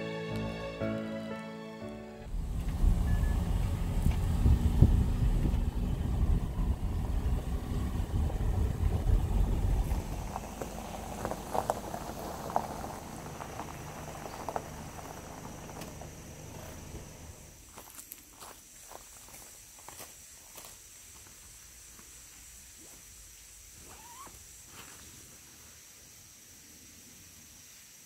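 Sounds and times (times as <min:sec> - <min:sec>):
wind buffeting microphone: 0:02.3 - 0:12.2.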